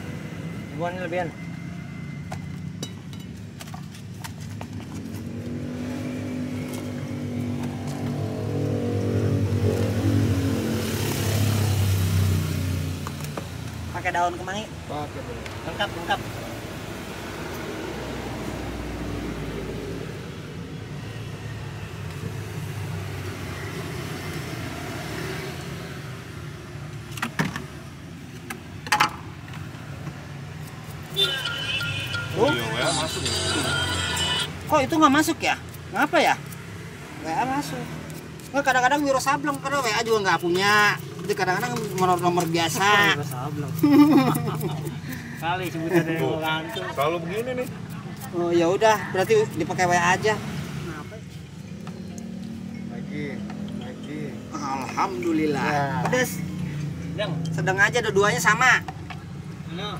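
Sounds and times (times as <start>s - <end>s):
traffic rumble: 0.0s - 59.9s
vehicle engine passing: 4.8s - 14.0s.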